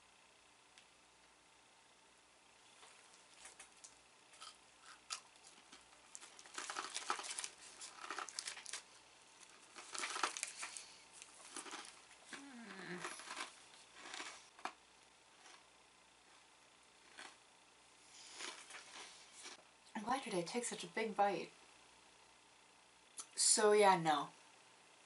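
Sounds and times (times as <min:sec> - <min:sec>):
snack wrapper crinkling: 0:03.1 - 0:14.8, 0:18.3 - 0:19.6.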